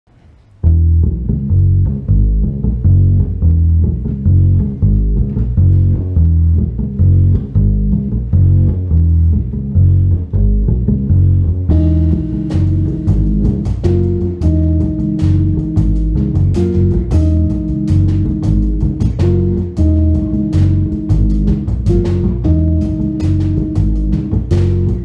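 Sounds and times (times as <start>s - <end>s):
held melody notes: 0.6s - 25.0s
plucked upright bass: 0.6s - 25.0s
drum kit with cymbals: 11.7s - 25.0s.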